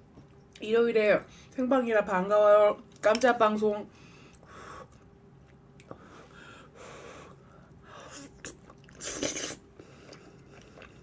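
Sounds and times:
quiet chewing: 4.3 - 6.1, 8.2 - 11.0
mouth and breath sounds: 5.8 - 11.0.

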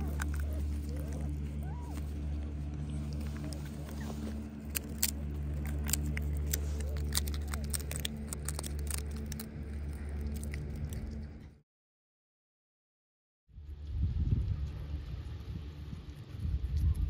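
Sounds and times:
animals crunching peanuts: 0.0 - 11.6
steady low hum: 0.0 - 11.6, 13.6 - 17.0.

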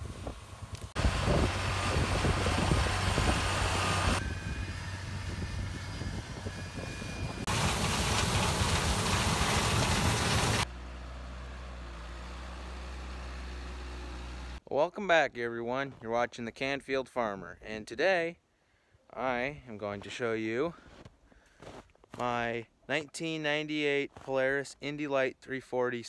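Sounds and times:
tractor engines running: 0.0 - 14.6.

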